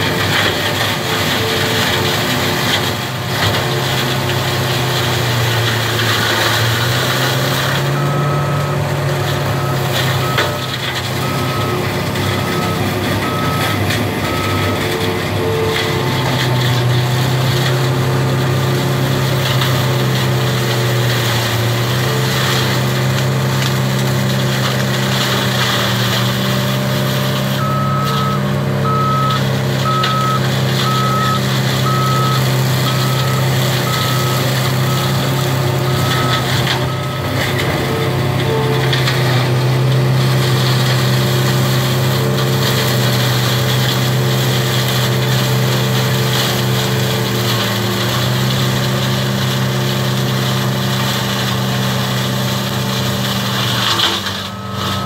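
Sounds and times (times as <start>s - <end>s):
diesel engine under load: 0.0s - 55.0s
flail shredder cutting reeds: 0.0s - 55.0s
reversing alarm beeping: 7.8s - 16.8s, 27.6s - 38.8s, 54.4s - 55.0s.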